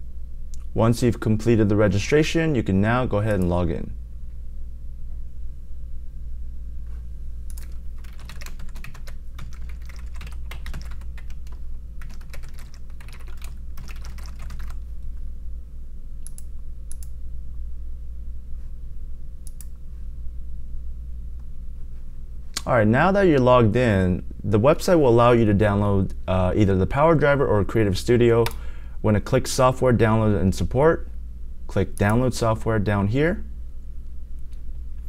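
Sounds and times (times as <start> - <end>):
steady low hum: 0.0 - 35.0
typing on keyboard: 7.5 - 14.8.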